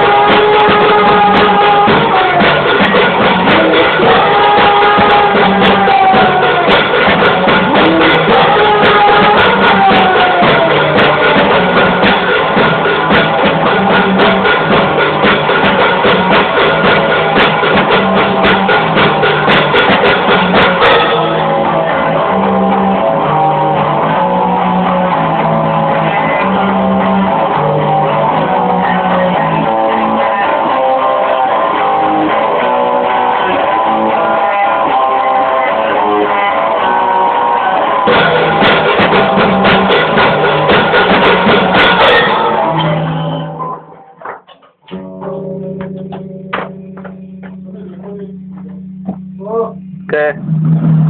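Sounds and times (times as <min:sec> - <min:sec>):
drums: 0:00.0 - 0:51.0
guitar melody: 0:00.0 - 0:51.0
punk rock band playing: 0:00.0 - 0:51.0.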